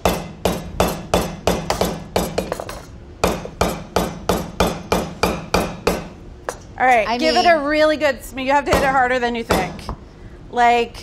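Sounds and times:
hammer striking coconut shells: 0.0 - 6.2.

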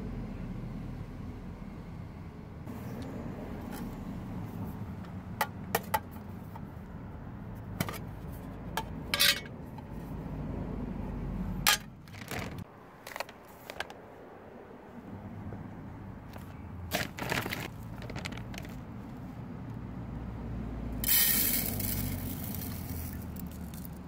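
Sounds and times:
metal mess tin clinking and rattling: 8.8 - 9.5.

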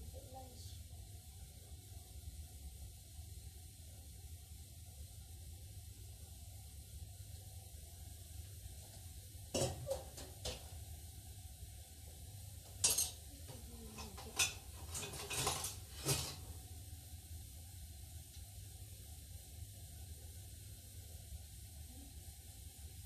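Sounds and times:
utensil clinking on glass dish: 12.8 - 13.2
utensil scraping dish: 14.0 - 16.5.

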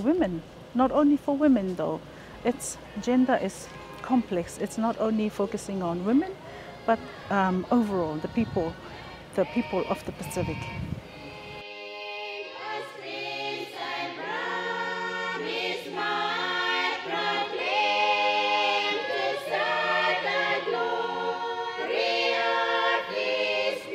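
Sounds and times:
women's choir singing: 5.8 - 23.9.

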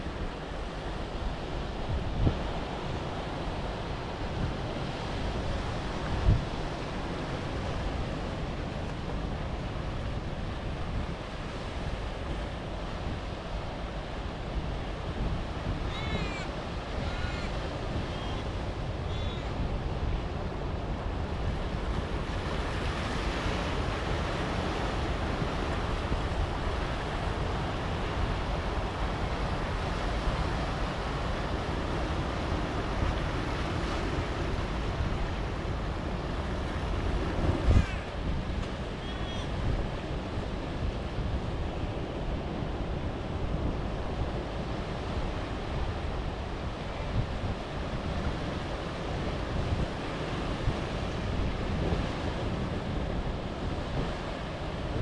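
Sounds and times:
surf washing over rocks: 0.0 - 55.0
wind buffeting microphone: 25.0 - 55.0.

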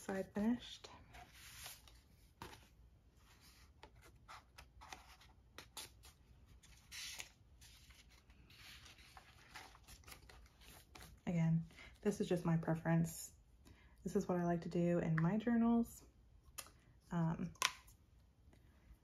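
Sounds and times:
paper handling: 3.3 - 11.2.

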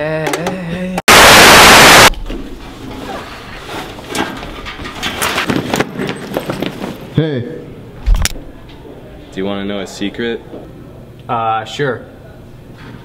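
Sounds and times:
tv static hiss: 1.1 - 2.1.

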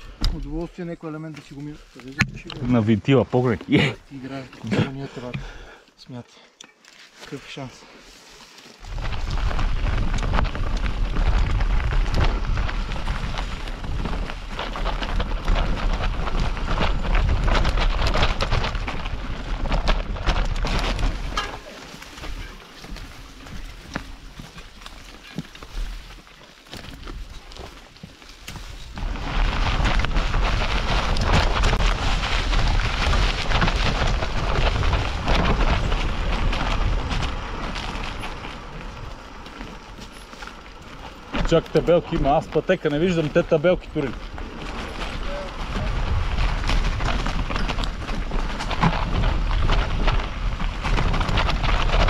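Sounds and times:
bike tyres rattling over stones: 0.0 - 5.8, 6.9 - 52.0
wind rumble on microphone: 8.8 - 52.0.

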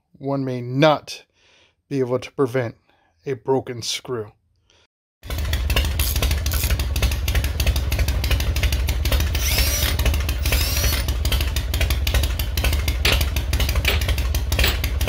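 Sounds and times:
motorcycle engine running: 5.2 - 15.0.

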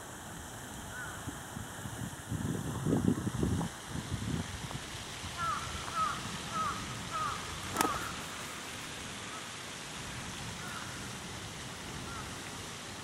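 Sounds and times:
crow cawing: 0.9 - 1.2, 5.4 - 8.2, 10.6 - 11.0, 12.1 - 12.4.

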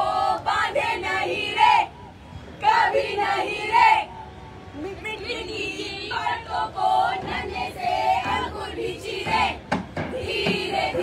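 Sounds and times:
group singing chant-like: 0.0 - 1.9, 2.6 - 4.1, 5.4 - 11.0.

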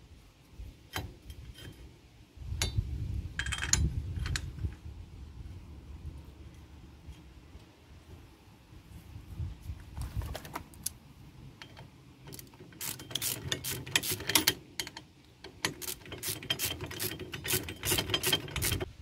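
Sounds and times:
ratchet wrench clicking: 12.3 - 15.0, 15.6 - 18.9.

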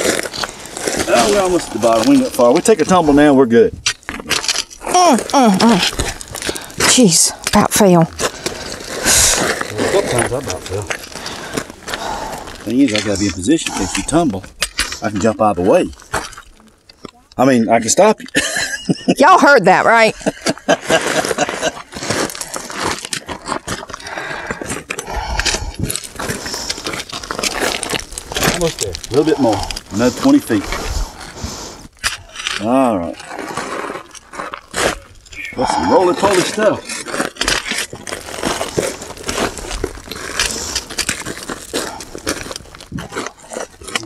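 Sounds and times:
footsteps crunching on gravel: 0.0 - 2.9, 7.9 - 13.4, 20.6 - 31.7, 36.2 - 44.0
small stones scraping: 0.0 - 18.3, 19.4 - 44.0.

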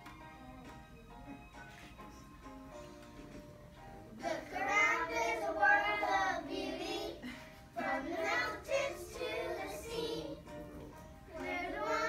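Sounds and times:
children singing together: 4.2 - 10.7, 11.3 - 12.0.

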